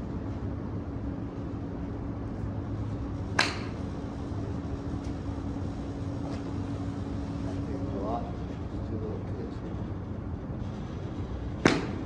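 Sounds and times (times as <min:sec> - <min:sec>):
steady low hum: 0:00.0 - 0:12.0
golf club striking ball: 0:03.4 - 0:03.7, 0:11.6 - 0:12.0.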